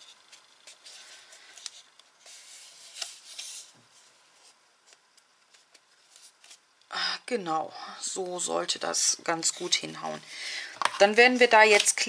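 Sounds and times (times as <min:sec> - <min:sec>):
paper rustling and rubbing: 0:00.0 - 0:06.7.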